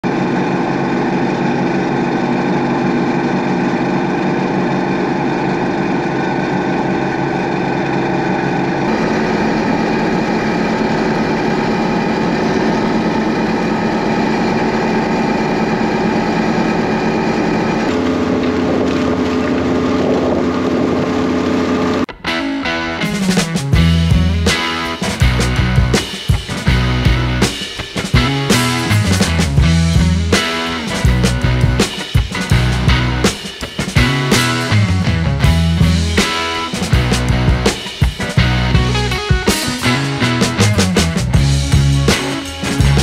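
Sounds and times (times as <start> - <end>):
combine harvester engine droning: 0.1 - 22.1.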